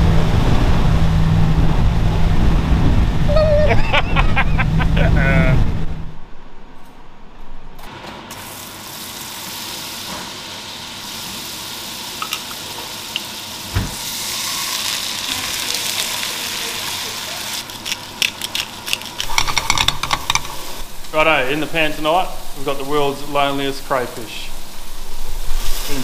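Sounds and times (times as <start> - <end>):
food sizzling in a pan: 8.3 - 26.0.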